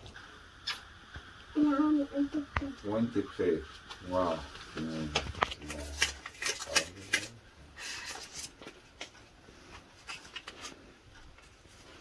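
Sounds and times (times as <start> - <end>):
banknotes crinkling and flicking: 3.8 - 12.0.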